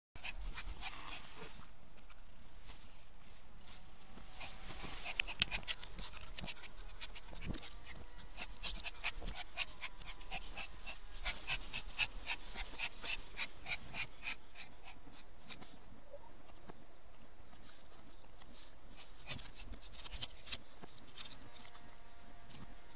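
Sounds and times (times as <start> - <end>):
dog panting rapidly: 0.2 - 1.7, 4.2 - 15.7.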